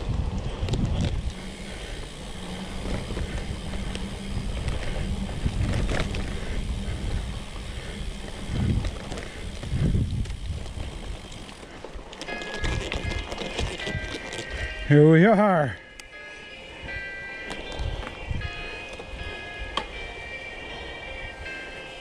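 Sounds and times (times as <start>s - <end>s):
wind on microphone: 0.0s - 11.4s
tyres rumbling on dirt: 0.0s - 15.7s.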